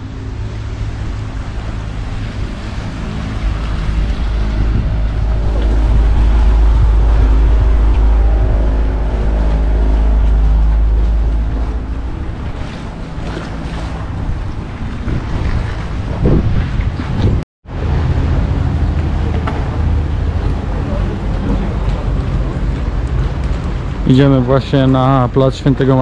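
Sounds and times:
water splashing and washing: 0.0 - 25.2
boat engine rumble: 0.0 - 26.0
wind: 0.0 - 26.0.

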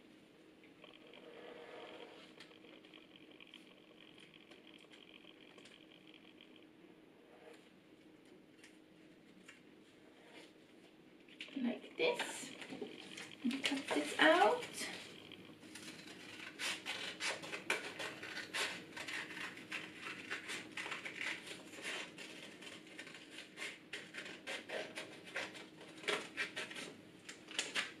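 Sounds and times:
scissors snipping paper: 15.7 - 28.0.

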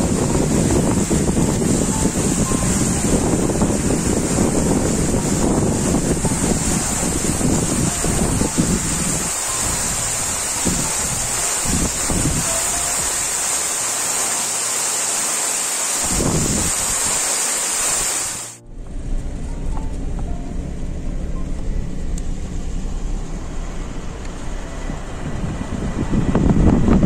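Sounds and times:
low dull rumble: 0.0 - 13.1, 18.6 - 27.0
wind noise: 0.0 - 13.4, 16.0 - 27.0
waterfall rushing: 0.0 - 18.6.

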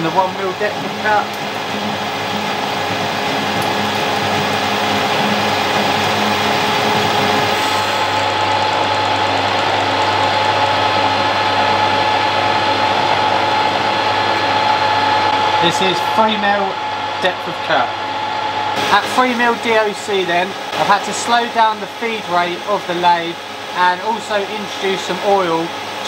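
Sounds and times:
lathe tool cutting steel: 0.0 - 17.3
metal lathe humming and whining: 0.0 - 26.0.

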